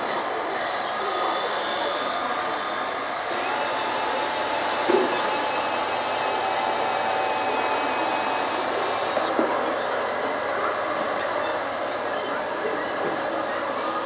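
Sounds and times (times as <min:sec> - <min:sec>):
small motor whirring: 0:03.2 - 0:10.2.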